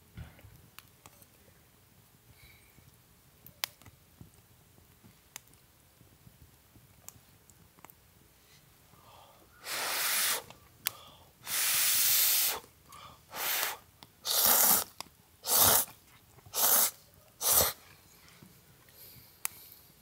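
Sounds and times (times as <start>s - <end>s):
short bursts of hiss: 9.6s - 10.6s, 11.4s - 12.7s, 13.3s - 17.9s.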